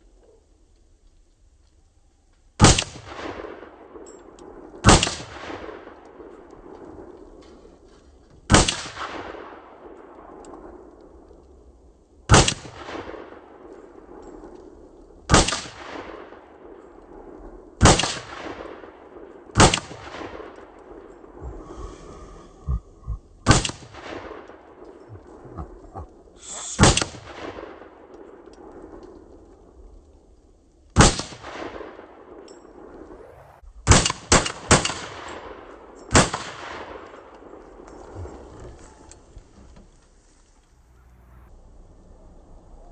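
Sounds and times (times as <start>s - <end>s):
rifle shots with echo: 2.6s - 7.8s, 8.5s - 11.3s, 12.3s - 21.4s, 23.4s - 25.4s, 26.8s - 29.8s, 31.0s - 37.9s.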